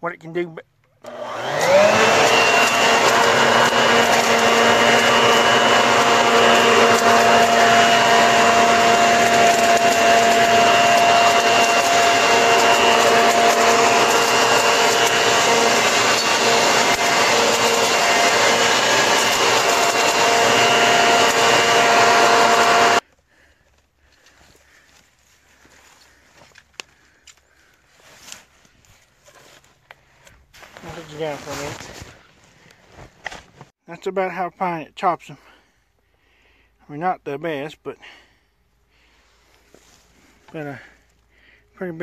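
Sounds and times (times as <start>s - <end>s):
leaf vacuum motor whine: 1.0s - 23.5s
dry leaves sucked and shredded: 30.7s - 32.1s.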